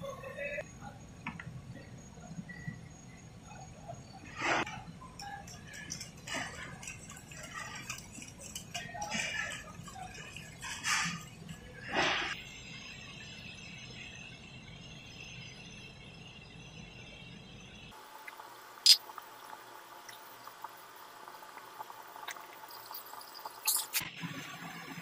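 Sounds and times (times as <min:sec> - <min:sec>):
thick liquid pouring: 0:05.3 - 0:12.4.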